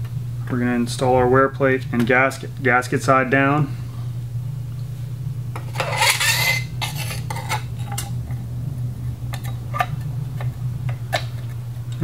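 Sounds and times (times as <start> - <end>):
steady low hum: 0.0 - 12.0
metal plate scraping rattle: 5.6 - 8.1.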